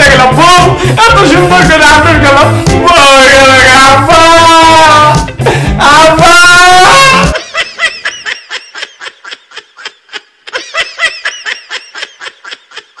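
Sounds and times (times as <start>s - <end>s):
loud wailing song over music: 0.0s - 7.5s
rapid high-pitched laughter: 7.3s - 13.0s.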